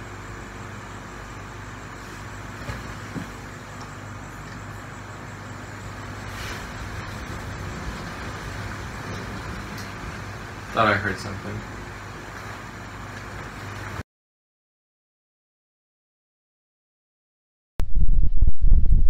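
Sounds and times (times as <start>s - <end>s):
room noise hum and hiss: 0.0s - 14.0s.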